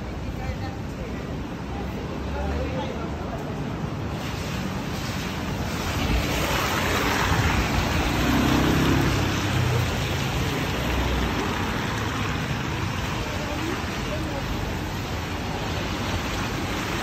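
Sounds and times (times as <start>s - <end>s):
rain and wet tyres hissing: 0.0s - 17.0s
motor scooter passing: 6.0s - 13.1s.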